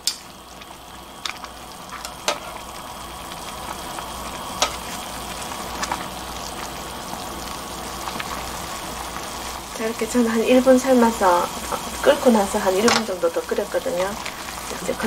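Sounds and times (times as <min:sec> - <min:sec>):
metal tongs clicking on pot: 0:00.0 - 0:00.3, 0:12.8 - 0:13.1
water boiling in a pot: 0:00.0 - 0:15.0.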